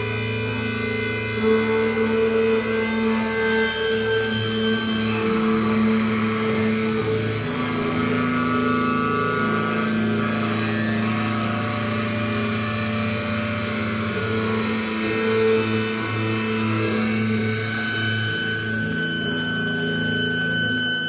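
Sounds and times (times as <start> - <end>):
distorted droning electric guitars: 0.0 - 21.0.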